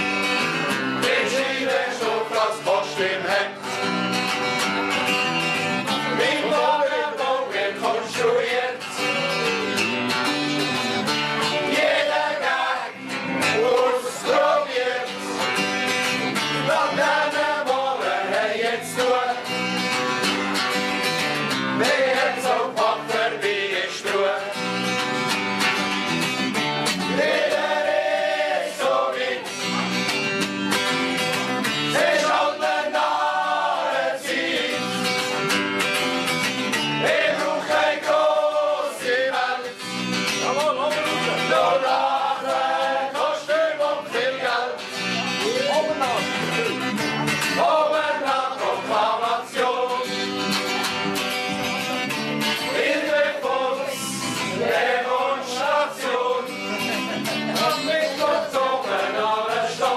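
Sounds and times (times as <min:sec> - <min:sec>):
electric bass guitar: 0:00.0 - 0:43.3, 0:44.0 - 0:59.9
strummed acoustic guitar: 0:00.0 - 0:59.9
men singing in chorus: 0:01.0 - 0:03.9, 0:06.1 - 0:09.7, 0:11.6 - 0:19.6, 0:21.8 - 0:24.8, 0:27.2 - 0:29.5, 0:31.9 - 0:35.0, 0:37.0 - 0:39.9, 0:40.5 - 0:44.9, 0:47.5 - 0:50.3, 0:52.6 - 0:56.7, 0:57.5 - 0:59.9.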